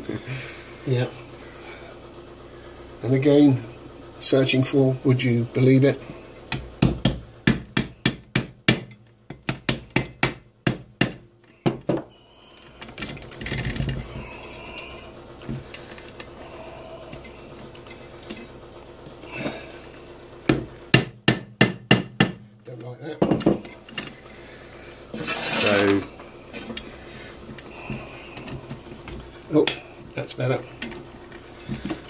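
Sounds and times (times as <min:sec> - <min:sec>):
hammer tapping on metal shafts: 0:06.4 - 0:12.1, 0:20.4 - 0:24.2, 0:27.5 - 0:29.8
metal parts being handled: 0:12.8 - 0:16.4, 0:25.1 - 0:26.9.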